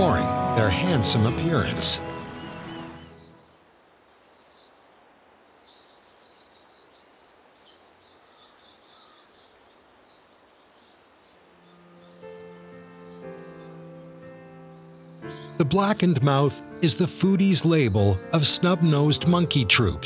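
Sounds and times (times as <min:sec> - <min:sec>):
soft background music: 0:00.0 - 0:03.6, 0:11.2 - 0:20.0
falling bird chirps: 0:02.0 - 0:04.9, 0:05.5 - 0:15.6.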